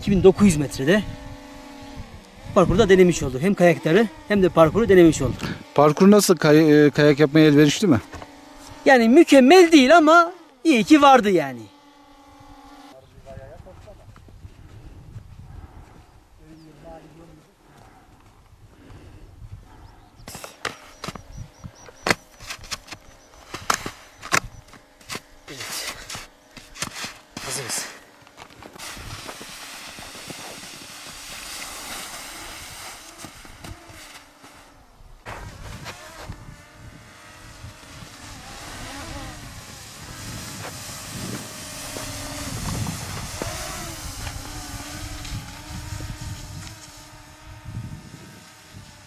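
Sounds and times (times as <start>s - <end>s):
drone buzzing: 0.0s - 13.0s, 18.8s - 49.0s
skis knocking and scraping on snow: 20.3s - 21.3s, 21.9s - 36.3s.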